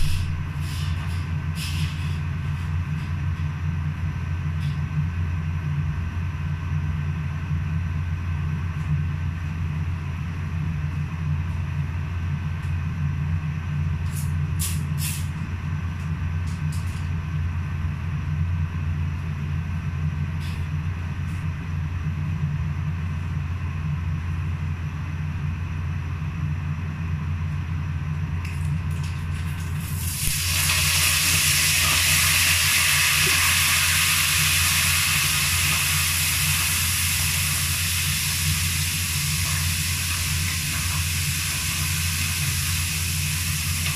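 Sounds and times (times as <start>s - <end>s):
kitchen appliances humming: 0.0s - 4.5s, 27.9s - 43.9s
food sizzling in a hot pan: 30.0s - 43.9s.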